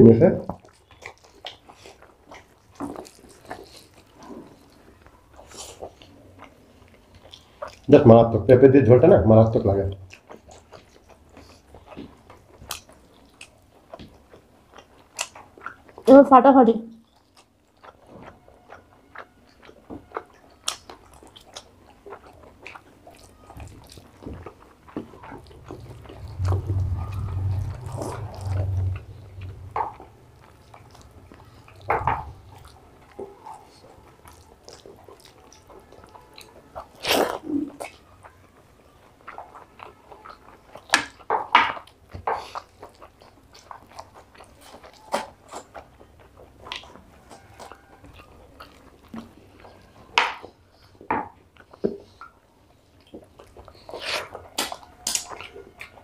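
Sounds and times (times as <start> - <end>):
chewing and lip smacks: 0.4 - 8.0, 9.9 - 16.1, 16.9 - 56.0
low hum: 24.9 - 33.5.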